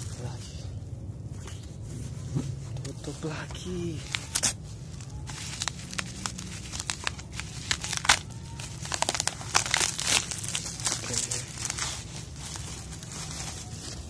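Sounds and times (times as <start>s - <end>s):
plastic packaging crinkling: 3.5s - 14.0s.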